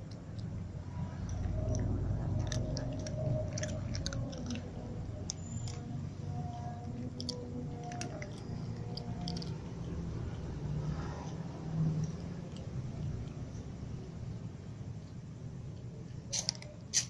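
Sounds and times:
cats crunching dry kibble: 0.0s - 13.5s.

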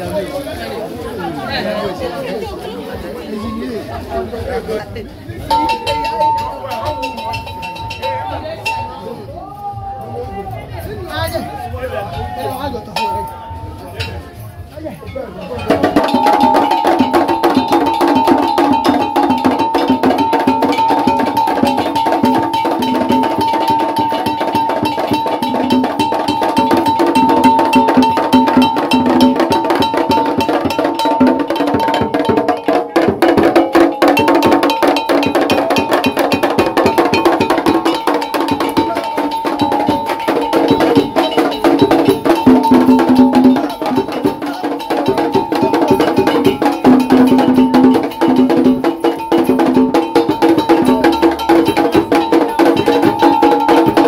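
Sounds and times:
fast dense drumming: 15.6s - 54.0s.

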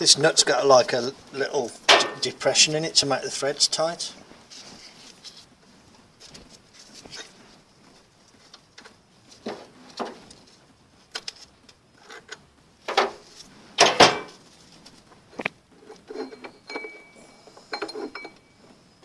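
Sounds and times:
short metallic ring: 16.1s - 18.6s.

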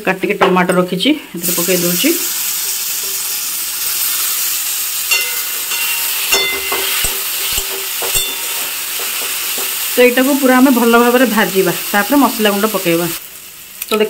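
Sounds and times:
food sizzling in hot oil: 0.9s - 14.0s
spatula scraping a pan: 5.1s - 10.0s.

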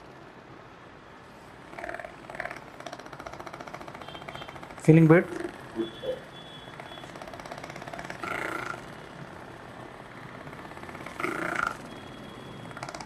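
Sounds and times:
massage gun buzzing: 1.6s - 13.0s.

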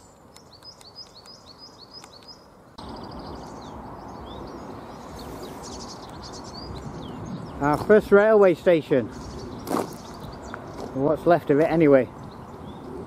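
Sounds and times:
rush of outdoor noise: 0.0s - 13.0s
small birds chirping: 0.0s - 13.0s.

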